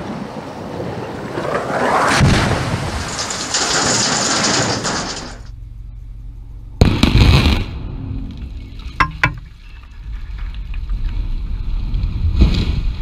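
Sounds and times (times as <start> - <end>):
rumbling and clattering rubble: 1.3 - 5.6
faint low hum: 5.5 - 11.1.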